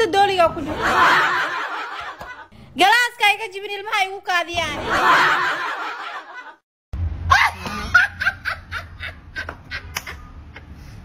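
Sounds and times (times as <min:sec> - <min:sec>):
laughter: 0:00.6 - 0:02.5, 0:04.7 - 0:06.6, 0:07.3 - 0:10.9
low hum: 0:07.0 - 0:11.0.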